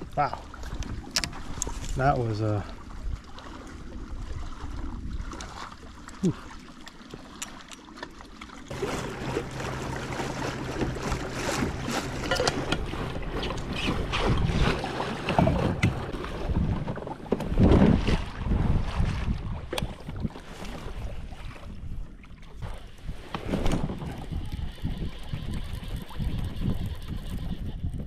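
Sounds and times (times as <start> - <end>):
water noise from kayak: 0.0 - 28.0
steady low hum: 8.7 - 16.8
wind buffeting microphone: 8.7 - 28.0.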